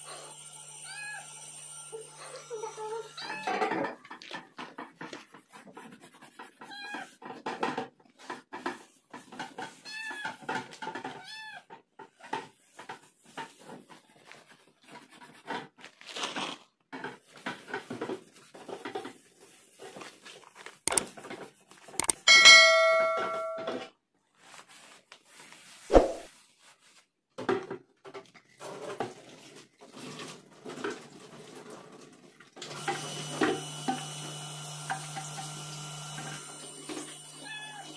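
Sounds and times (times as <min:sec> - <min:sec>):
cat meowing: 0:03.2 - 0:03.7, 0:09.8 - 0:10.4, 0:11.2 - 0:11.7, 0:37.4 - 0:37.9
small clicks and knocks: 0:20.9 - 0:21.4, 0:22.0 - 0:22.3
loud ringing clang: 0:22.2 - 0:23.8.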